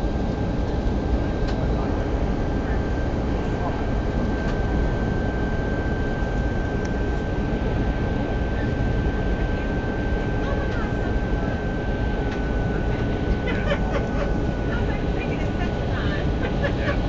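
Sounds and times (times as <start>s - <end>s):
aircraft cabin engine roar: 0.0s - 17.0s
constant high whine: 0.0s - 17.0s.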